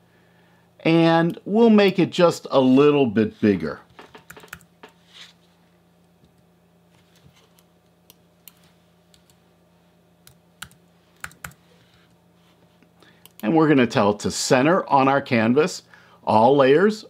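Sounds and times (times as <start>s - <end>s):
computer keyboard keystrokes: 4.1s - 4.7s, 10.3s - 11.6s.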